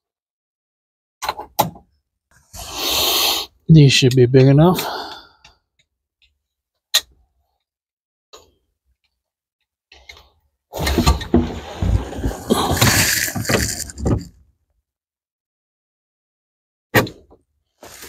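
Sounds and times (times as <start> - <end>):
rustling and clattering: 10.8 - 14.4.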